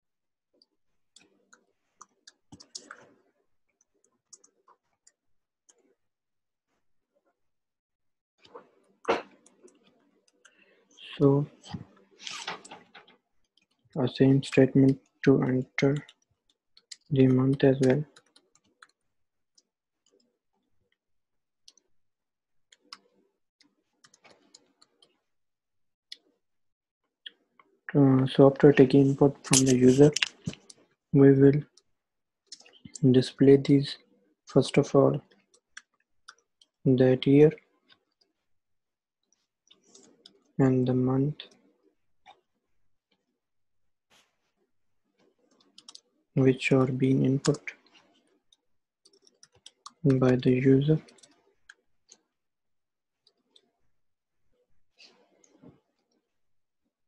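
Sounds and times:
laptop keyboard typing: 49.0 - 50.2.

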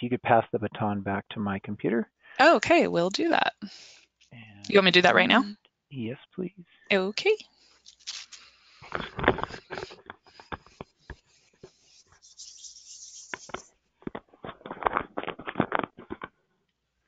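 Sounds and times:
muffled voices: 0.0 - 2.9, 4.4 - 6.5.

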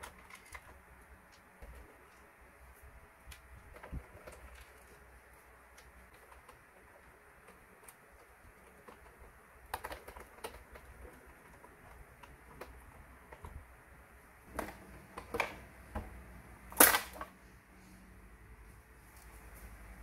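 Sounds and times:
plastic parts knocking: 3.3 - 5.0, 5.7 - 13.6.

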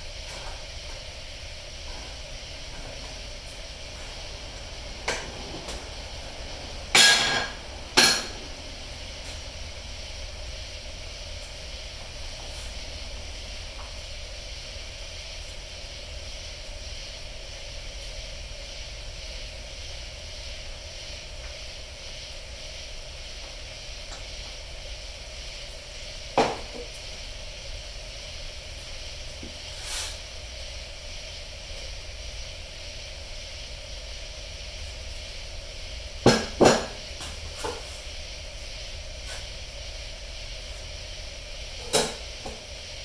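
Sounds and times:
steady hiss: 0.0 - 43.0.

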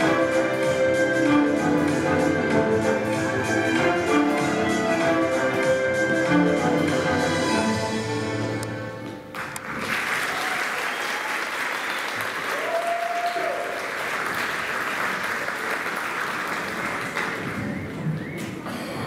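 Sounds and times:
audience clapping: 9.0 - 18.6.

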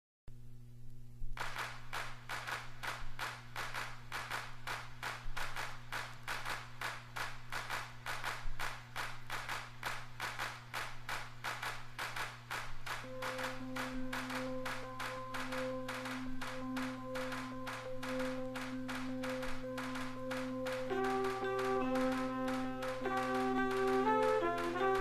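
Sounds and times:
hand-clap percussion beat: 1.4 - 25.0
low sustained note: 13.1 - 20.2.

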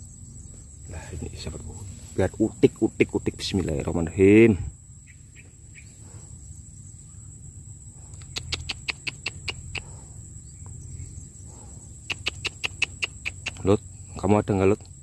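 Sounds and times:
insects droning: 0.0 - 15.0
quick sharp clicks: 8.2 - 9.9, 12.1 - 13.7.

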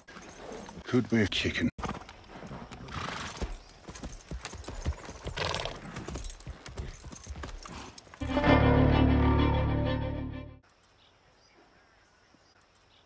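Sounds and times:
horse hooves clip-clopping: 0.0 - 8.2
loud held musical chord: 8.2 - 10.6.

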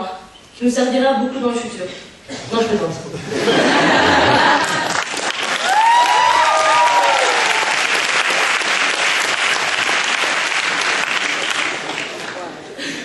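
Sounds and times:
crowd cheering calls: 3.7 - 12.2
audience applauding: 4.0 - 12.5.

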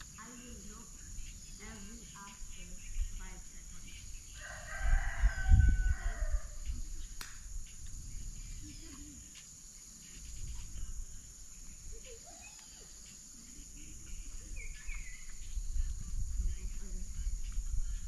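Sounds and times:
high-pitched insect drone: 0.0 - 18.0
bird chirps: 11.4 - 13.4, 14.0 - 15.9.

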